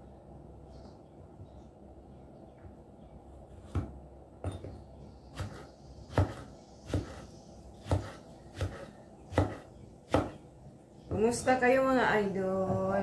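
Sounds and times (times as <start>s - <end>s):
knife chopping on wooden board: 5.4s - 10.4s.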